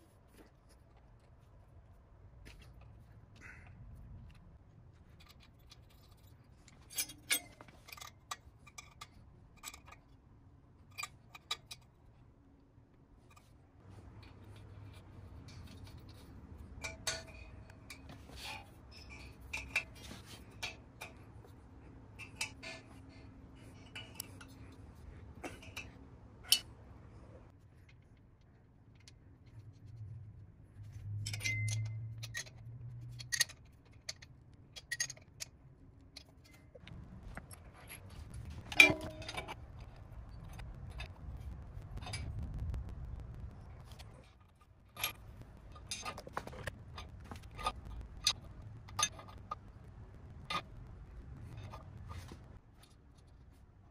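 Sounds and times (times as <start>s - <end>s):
faint low hum: 0.0s - 53.9s
small metal parts clinking: 31.1s - 35.6s.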